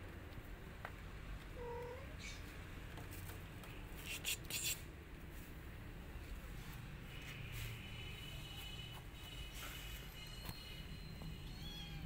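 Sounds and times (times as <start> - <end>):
kitten meowing: 1.6 - 2.1, 11.5 - 12.0
short scratchy rasps: 4.0 - 4.9.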